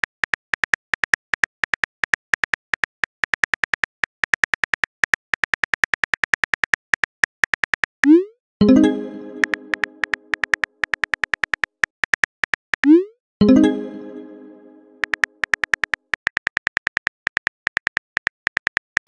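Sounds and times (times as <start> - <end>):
phone keyboard clicks: 0.0 - 7.9, 15.0 - 19.0.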